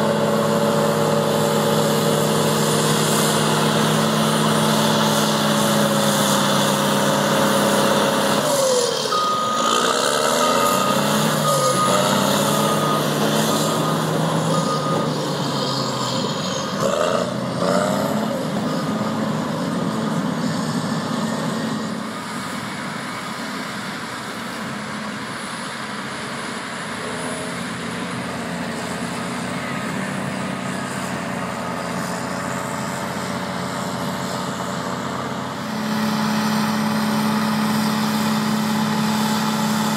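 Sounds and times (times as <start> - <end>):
bulldozer diesel engines revving: 0.0 - 39.9
reversing alarm beeping: 0.1 - 19.6.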